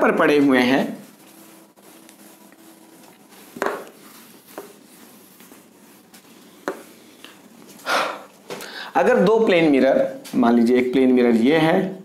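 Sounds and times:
duster rubbing whiteboard: 0.0 - 7.8.

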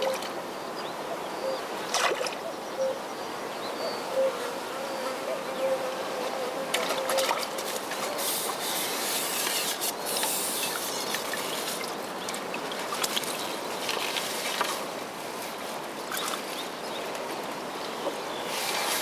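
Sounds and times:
water trickling and sloshing: 1.8 - 2.5, 6.7 - 19.0
small sharp splashes: 1.9 - 2.4, 9.3 - 14.9, 16.0 - 16.6
steady hiss: 7.6 - 12.2.

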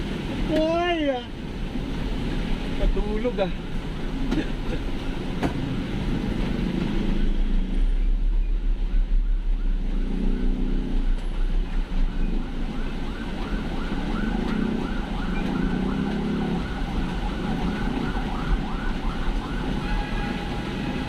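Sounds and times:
engine rumble and road noise: 0.0 - 21.0
siren yelping: 12.0 - 21.0.

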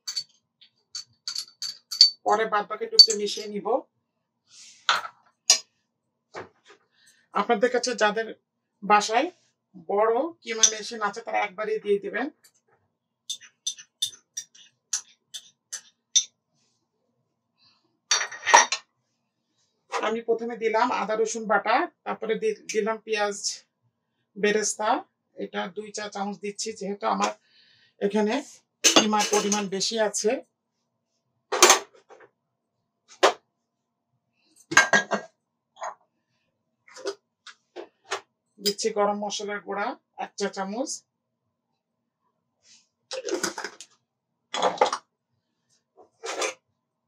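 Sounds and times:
kitchenware clattering: 0.0 - 0.2, 1.0 - 2.4, 3.0 - 3.5, 13.3 - 16.3, 18.1 - 18.8, 28.9 - 29.7, 34.7 - 35.9
spoon tapping bowl rim: 0.0 - 0.2, 1.0 - 2.3, 3.0 - 3.4, 13.3 - 16.3
glass jars clinking: 0.0 - 0.3, 1.0 - 2.4, 3.0 - 3.5, 13.3 - 16.3, 18.1 - 18.8, 34.7 - 35.9.

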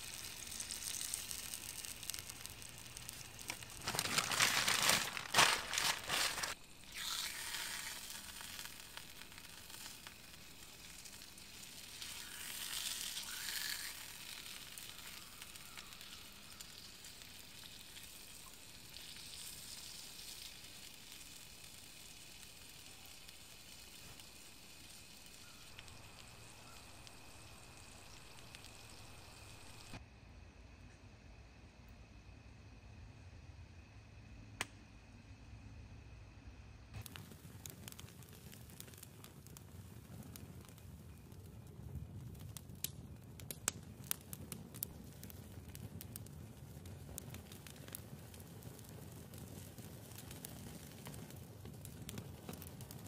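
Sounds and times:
food sizzling in a pan: 0.0 - 30.0.

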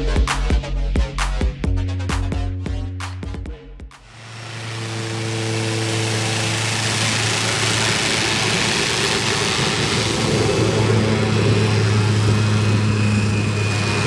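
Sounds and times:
background music: 0.0 - 4.1
propeller plane engine humming: 3.9 - 14.0.

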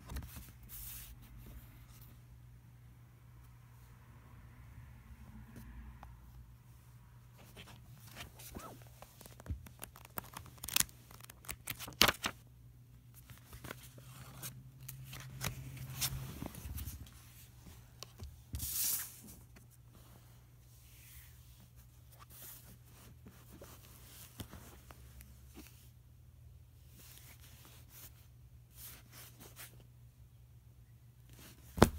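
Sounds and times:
paper pages flipping: 7.4 - 12.4, 13.1 - 17.2
paper rustling: 7.4 - 12.4.

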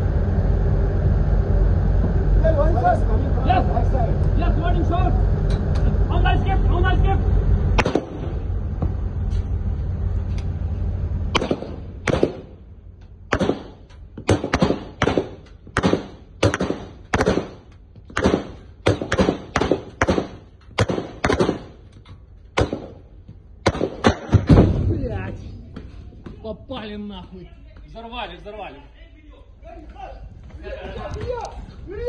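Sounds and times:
low rumble: 0.0 - 32.0
sharp gunshots with echo: 7.8 - 8.4, 11.3 - 12.6, 13.3 - 21.8, 22.6 - 24.9.

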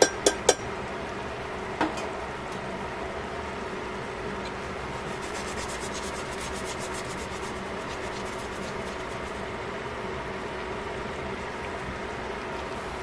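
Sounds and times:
constant low hum: 0.0 - 13.0
liquid bubbling in a pot: 4.7 - 13.0.

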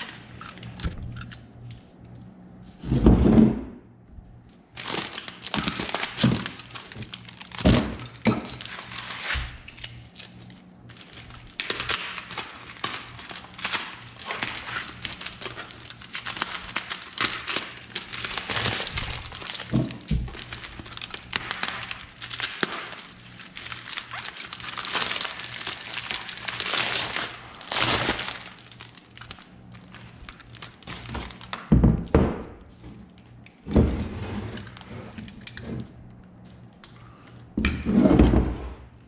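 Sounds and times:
plastic wrapping crackling: 4.7 - 33.7, 34.6 - 35.6.

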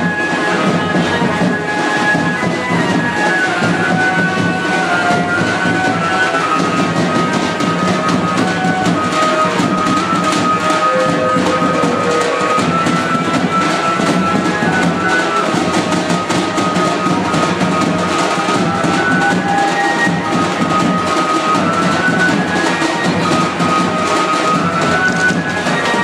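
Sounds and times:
high held melody: 0.0 - 26.0
large drums beating: 0.0 - 26.0.

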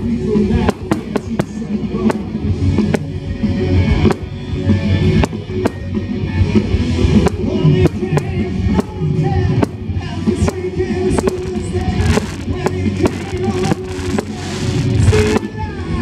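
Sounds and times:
loud music: 0.2 - 16.0
fireworks bursting in sharp bangs: 0.6 - 3.1, 4.0 - 4.3, 9.6 - 15.6.

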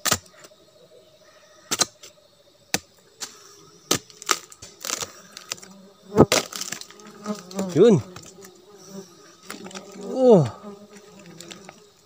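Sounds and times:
wood cracking and snapping: 3.9 - 7.6.

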